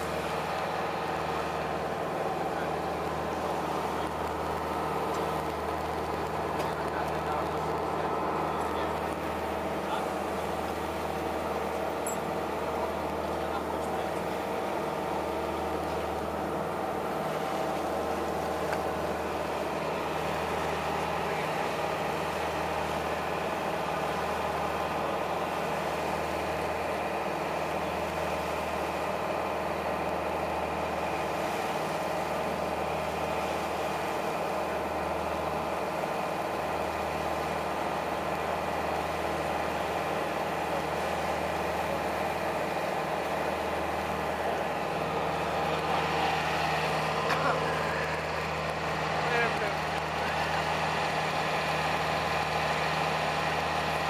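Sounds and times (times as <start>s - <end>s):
boat engine droning: 0.0s - 54.0s.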